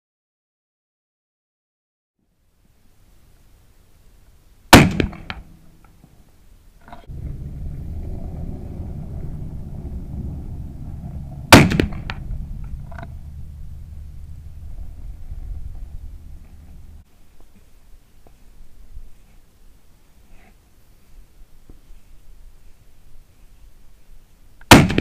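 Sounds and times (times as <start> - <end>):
rifle shots: 4.7 - 5.5, 11.5 - 12.4, 24.7 - 25.0
steady low rumble: 6.9 - 17.1.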